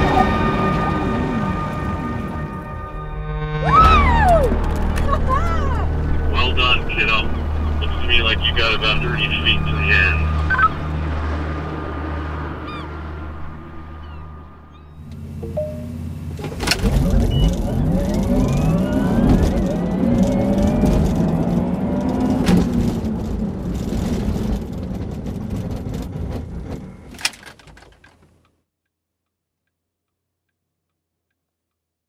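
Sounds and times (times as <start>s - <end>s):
tyre and road noise: 3.6s - 28.5s
electric car drive whining: 3.8s - 28.3s.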